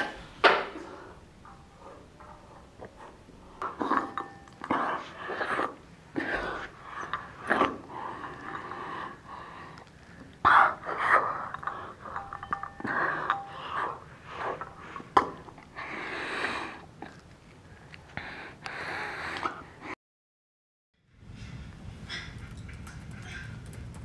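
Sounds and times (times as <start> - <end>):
person breathing: 4.7 - 16.9, 17.7 - 20.0.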